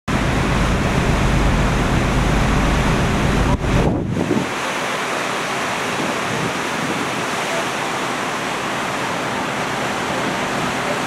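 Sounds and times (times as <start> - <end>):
heavy low rumble: 0.1 - 4.5
wind and sea rushing: 0.1 - 11.0.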